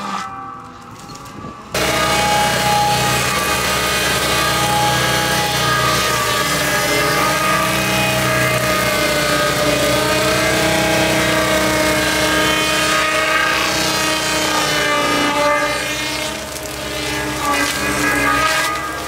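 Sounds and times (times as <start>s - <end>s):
circular saw blade cutting tree: 0.0s - 19.0s
loader engine running: 1.6s - 14.8s.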